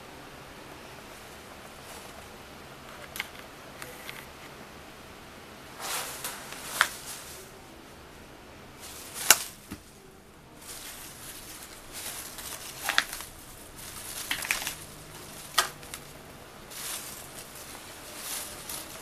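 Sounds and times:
cat rustling fabric toy: 0.9 - 2.6, 5.7 - 7.9, 8.7 - 19.0.

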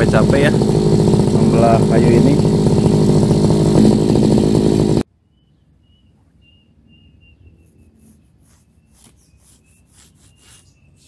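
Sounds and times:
brush cutter engine cutting off: 0.0 - 5.0
faint high chirp: 5.2 - 11.0.

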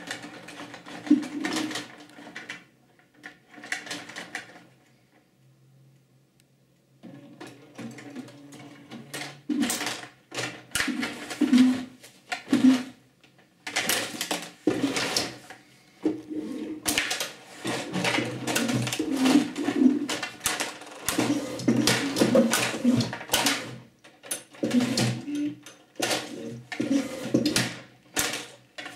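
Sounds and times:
table hockey rods clattering: 0.0 - 2.6, 9.0 - 13.0, 13.6 - 28.9.

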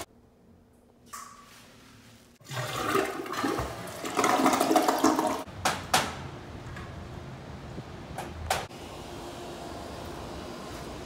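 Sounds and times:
toilet flushing: 2.4 - 5.5.

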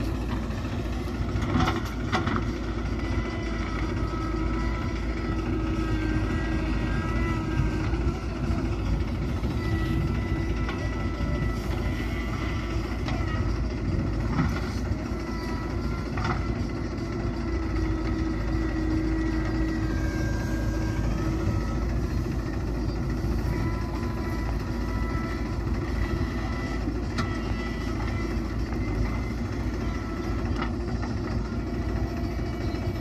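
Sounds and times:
diesel engine running: 0.0 - 33.0.

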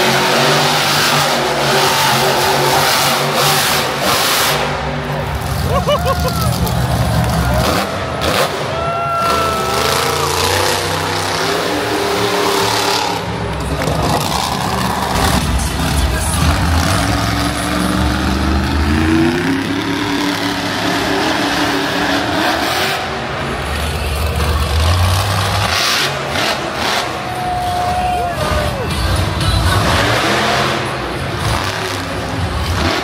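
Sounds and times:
monster truck engine revving: 0.0 - 33.0.

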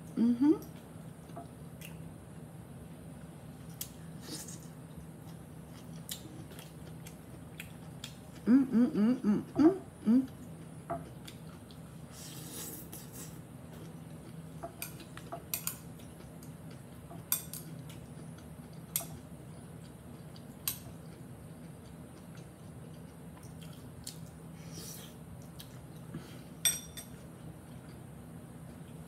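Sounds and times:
chewing: 3.6 - 8.5, 10.2 - 24.4.

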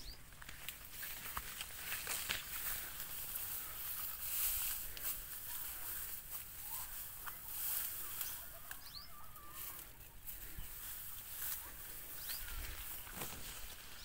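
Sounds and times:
bird chirps: 6.6 - 14.0.

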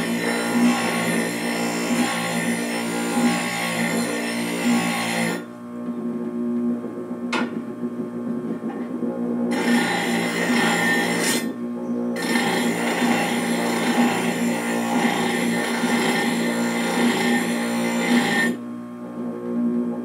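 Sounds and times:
bench grinder motor humming: 0.0 - 5.5, 9.5 - 11.6, 12.2 - 18.6.

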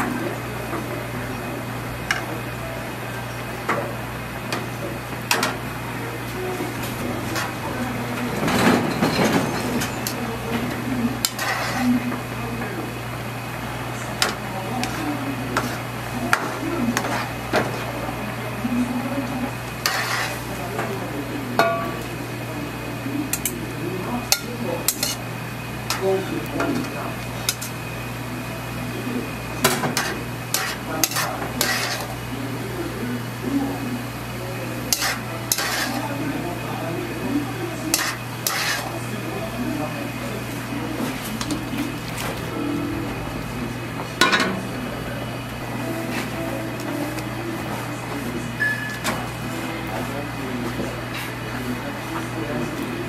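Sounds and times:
steady low hum: 0.0 - 53.0
utensils clinking on wok: 24.3 - 25.2.

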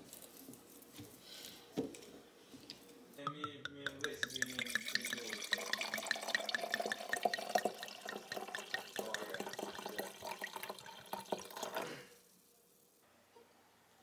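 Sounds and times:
water pouring into glass: 3.3 - 12.0.

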